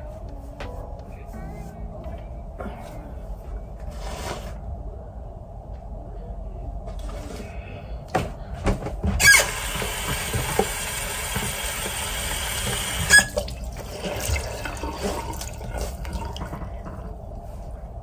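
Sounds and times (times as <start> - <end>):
sink tap running: 9.2 - 17.0
water dripping: 11.4 - 17.1.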